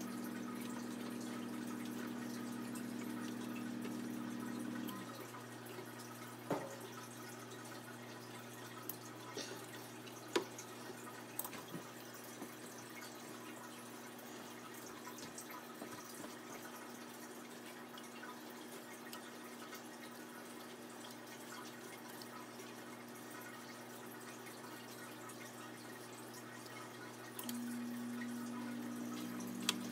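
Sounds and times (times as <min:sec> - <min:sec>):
steady low hum: 0:27.4 - 0:29.9.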